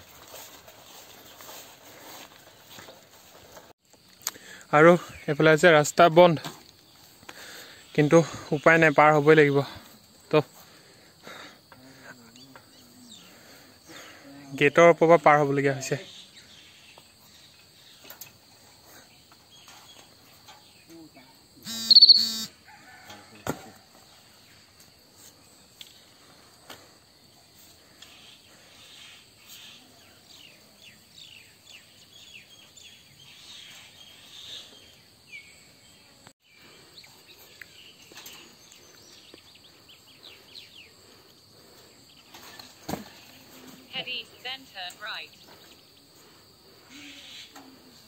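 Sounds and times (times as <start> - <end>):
insect drone: 3.3 - 48.0
bird chirps: 21.7 - 22.5
high-pitched squeal: 21.7 - 22.5.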